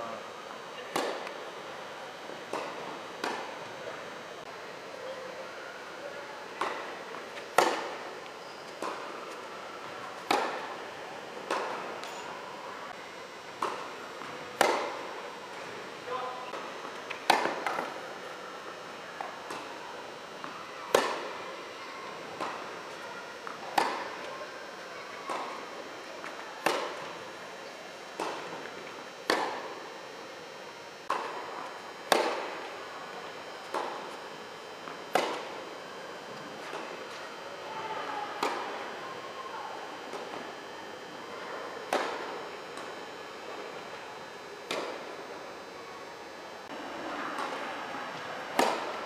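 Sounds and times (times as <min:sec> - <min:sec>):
tennis ball hit by rackets: 0:07.5 - 0:08.0, 0:10.2 - 0:10.6, 0:13.6 - 0:15.0, 0:17.1 - 0:18.0, 0:20.9 - 0:21.3, 0:23.7 - 0:24.2, 0:26.6 - 0:27.0, 0:29.3 - 0:29.6, 0:32.1 - 0:32.6, 0:35.1 - 0:35.5, 0:41.9 - 0:42.2, 0:44.7 - 0:45.0, 0:48.5 - 0:48.9.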